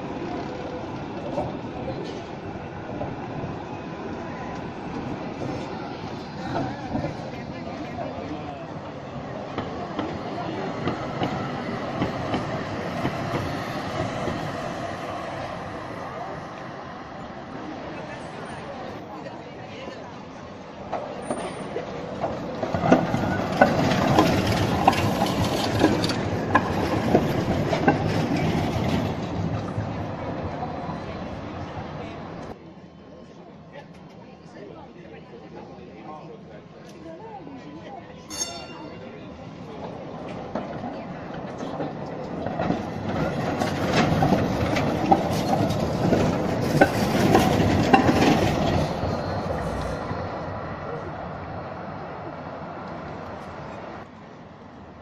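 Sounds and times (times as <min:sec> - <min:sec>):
tram wheels clacking over rail joints: 0:00.0 - 0:15.9, 0:19.9 - 0:32.6, 0:38.6 - 0:50.7.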